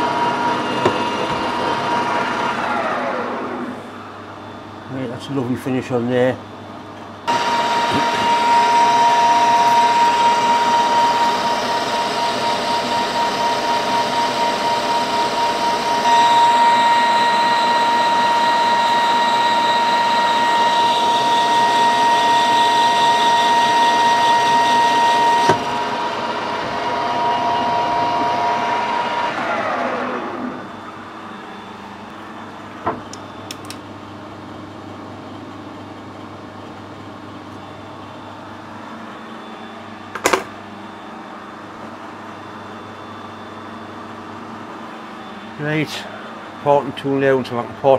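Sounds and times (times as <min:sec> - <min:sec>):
metal lathe whining: 0:00.0 - 0:03.8, 0:07.3 - 0:33.2
spindle winding down: 0:07.3 - 0:30.7.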